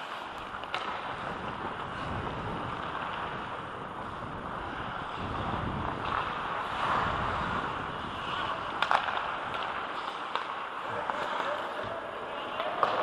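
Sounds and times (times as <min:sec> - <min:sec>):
skate blades scraping ice: 0:00.0 - 0:13.0
wind rushing on microphone: 0:01.1 - 0:08.9.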